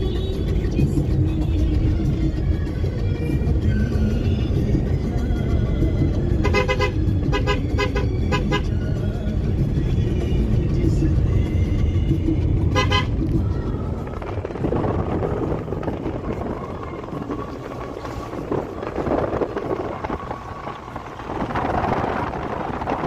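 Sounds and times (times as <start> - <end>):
vehicle engine and road rumble: 0.0 - 23.0
car horn tooting: 6.3 - 9.0, 12.7 - 13.2.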